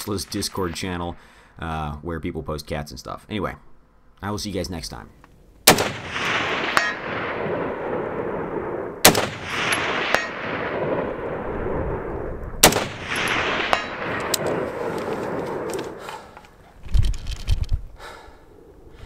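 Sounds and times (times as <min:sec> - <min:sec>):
rifle shots with echo: 0:05.6 - 0:16.4.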